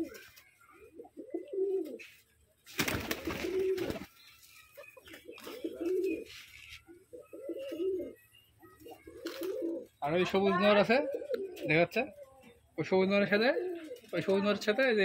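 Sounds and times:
pigeons cooing: 0.0s - 2.2s, 2.9s - 4.1s, 4.7s - 14.7s
wings flapping: 2.7s - 4.2s, 9.2s - 9.8s.

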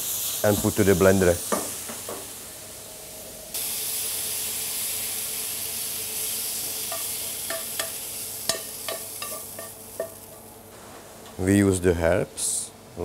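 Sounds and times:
frying pan sizzling: 0.0s - 10.6s
spoon tapping against pan: 6.9s - 10.2s.

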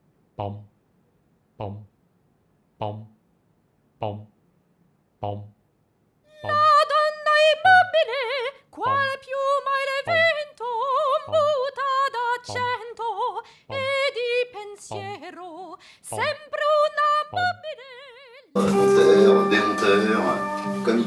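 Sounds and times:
operatic voice singing with vibrato: 6.3s - 15.5s, 16.1s - 21.0s
guitar music: 18.6s - 21.0s.

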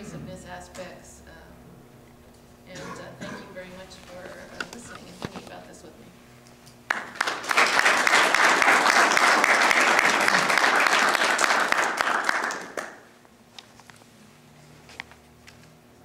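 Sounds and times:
audience applauding: 6.9s - 13.1s.

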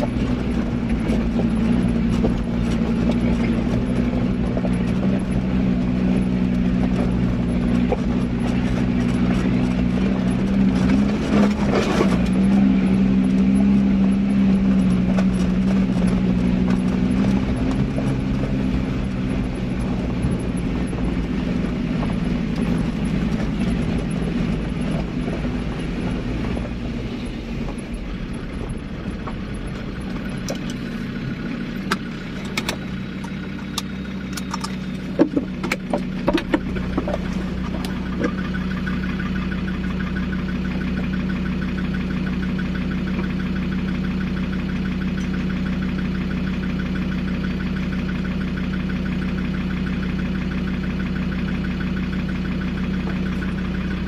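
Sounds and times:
vehicle engine hum: 0.0s - 54.0s.

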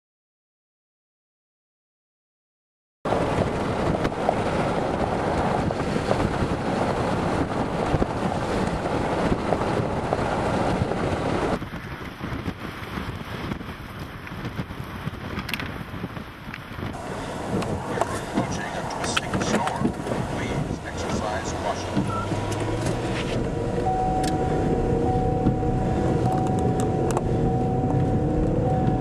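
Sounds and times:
wind on microphone: 3.1s - 29.0s
cooling fans humming: 17.0s - 29.0s.

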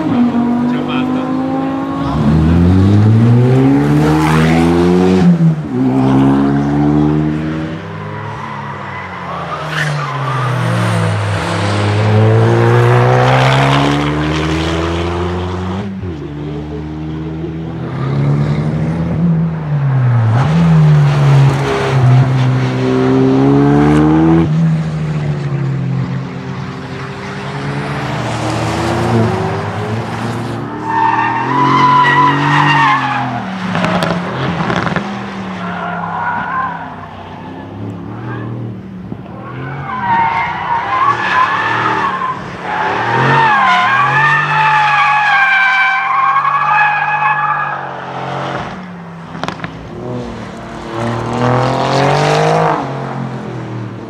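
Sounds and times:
car engine at full throttle: 0.0s - 7.9s, 32.7s - 35.4s, 47.9s - 54.0s.

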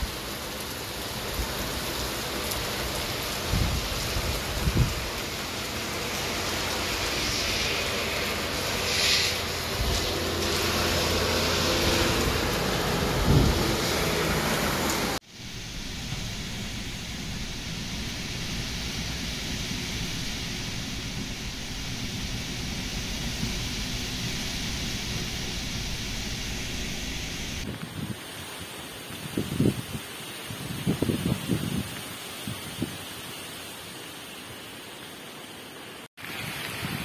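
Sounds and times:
heavy rain pouring: 0.0s - 37.0s
strong wind rumbling on microphone: 3.0s - 5.3s, 6.4s - 14.4s, 15.4s - 33.1s, 36.2s - 37.0s.

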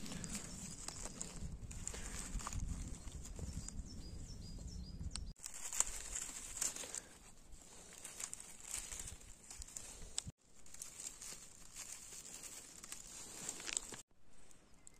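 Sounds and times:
dry leaves rustling and crackling: 0.0s - 3.8s, 5.4s - 14.1s
bird chirping: 3.1s - 5.3s.

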